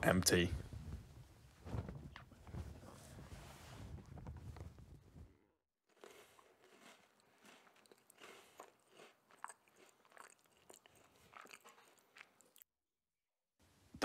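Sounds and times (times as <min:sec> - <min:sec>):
person chewing cereal: 0:05.9 - 0:12.7.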